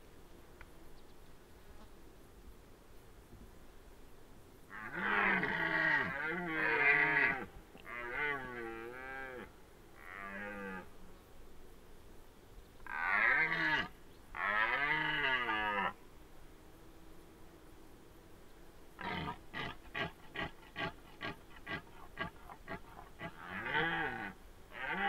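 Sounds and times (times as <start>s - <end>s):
red deer stag roaring: 19.0s - 25.0s.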